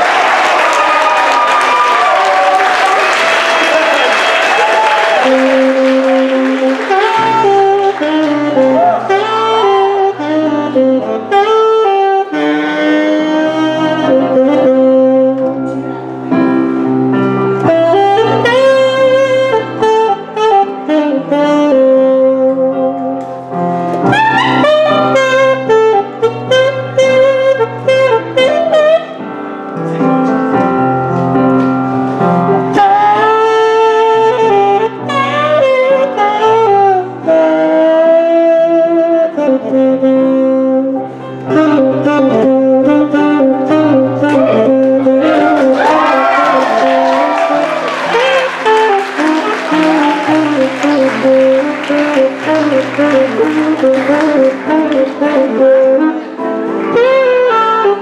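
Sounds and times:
applause: 0.0s - 9.1s, 45.3s - 55.2s
saxophone jazzy melody: 1.1s - 58.0s.

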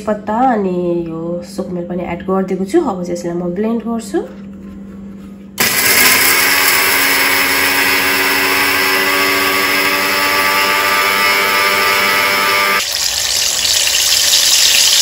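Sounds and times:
electric mixer grinder grinding spices: 5.6s - 15.0s.

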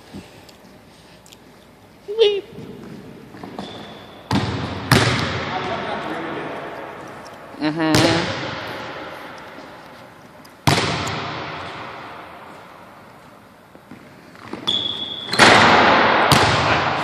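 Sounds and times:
basketball bouncing on gym floor: 2.6s - 5.8s, 7.7s - 9.2s, 10.6s - 12.1s, 13.9s - 17.0s
shoe squeak: 3.3s - 4.3s, 14.5s - 15.5s
ball slammed through rim: 4.3s - 5.5s, 10.6s - 12.1s, 15.3s - 17.0s.

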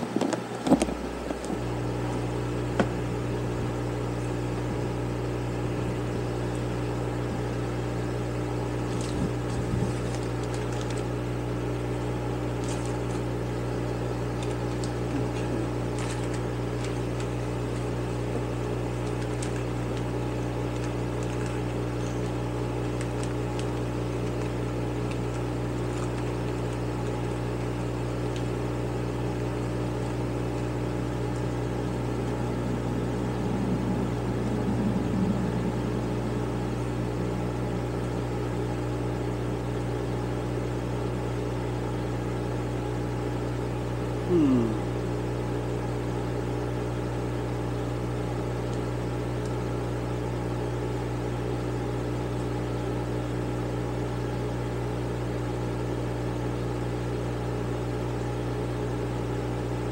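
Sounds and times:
electric fan humming: 0.0s - 59.9s
plastic bag rustling: 8.9s - 11.0s, 14.4s - 17.9s.

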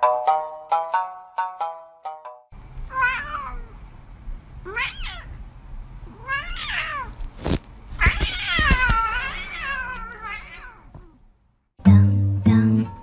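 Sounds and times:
cat meowing: 2.9s - 3.8s, 4.6s - 5.4s, 6.1s - 7.2s, 8.0s - 11.2s.

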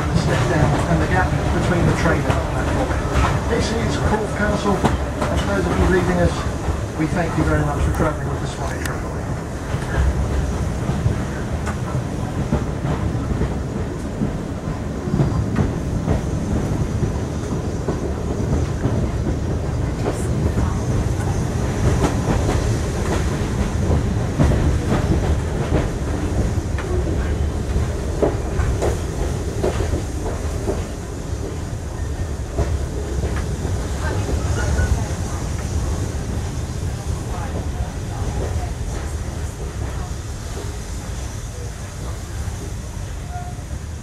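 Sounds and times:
train wheels rumbling: 0.0s - 44.0s.

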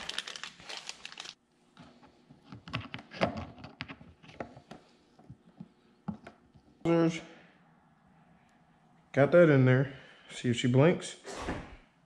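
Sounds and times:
plastic bag crinkling: 0.0s - 1.4s.

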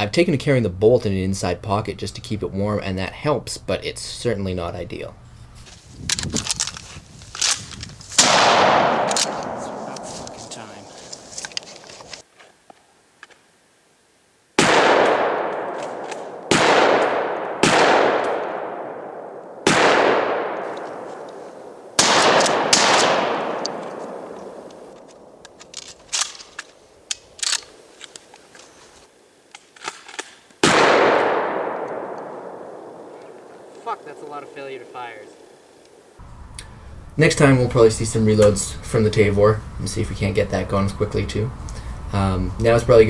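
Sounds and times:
shotgun shots echoing: 8.2s - 10.9s, 14.6s - 25.5s, 30.6s - 35.4s
shotgun pump action clacks: 24.6s - 28.2s.

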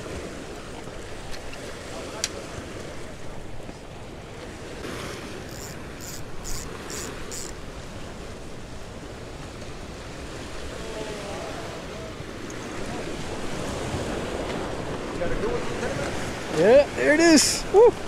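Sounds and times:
surf washing against jetty: 0.0s - 18.0s
quick high ticks: 5.5s - 7.5s.

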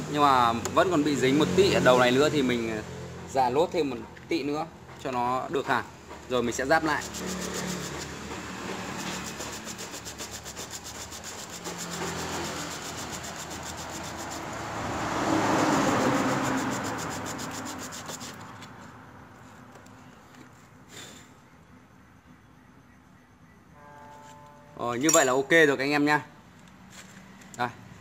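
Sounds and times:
metal part scraping on sandpaper: 6.4s - 19.6s.

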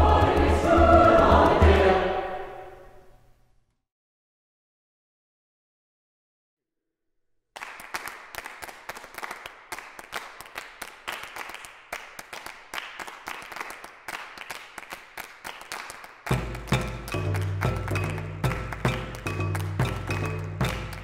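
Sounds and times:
hands clapping and fingers snapping: 7.6s - 21.0s.

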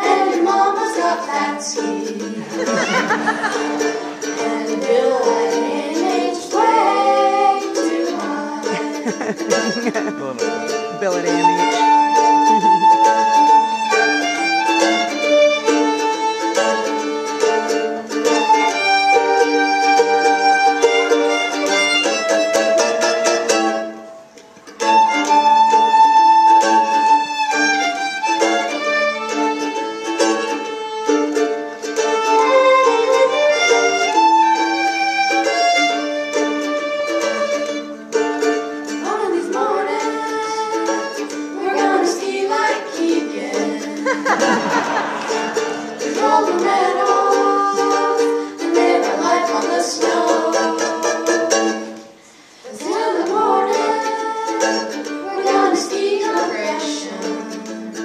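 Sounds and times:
fiddles and mandolin playing: 0.0s - 58.0s.

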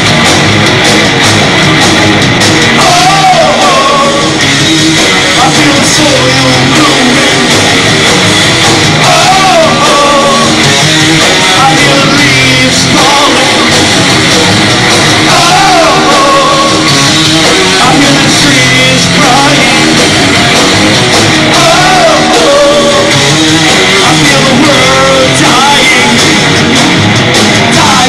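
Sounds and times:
bass guitar: 0.0s - 28.0s
distorted electric guitars: 0.0s - 28.0s
drums: 0.0s - 28.0s
man singing into microphone: 2.8s - 7.6s, 9.0s - 13.7s, 15.3s - 20.0s, 21.5s - 26.5s, 27.7s - 28.0s.

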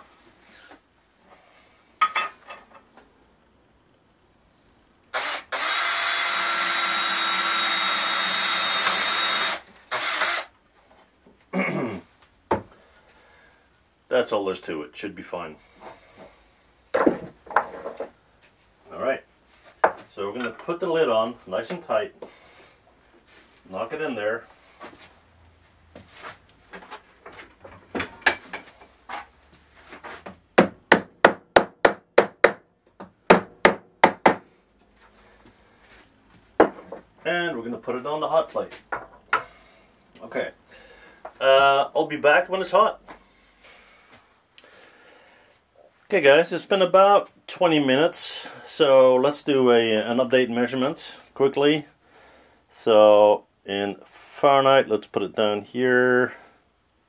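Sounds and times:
cordless drill drilling metal: 5.1s - 10.5s.

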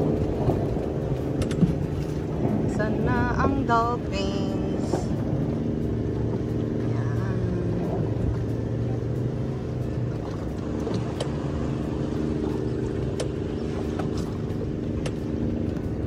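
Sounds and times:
outboard motor running: 0.0s - 16.0s
wind and water noise: 0.0s - 16.0s.

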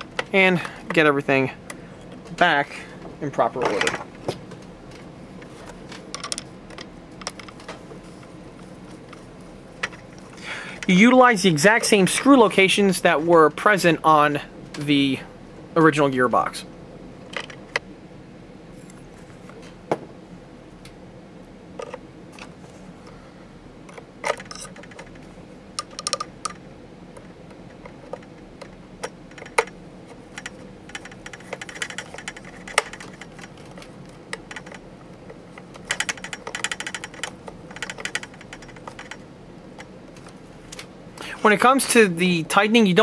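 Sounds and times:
screwdriver ticking: 35.7s - 39.2s.

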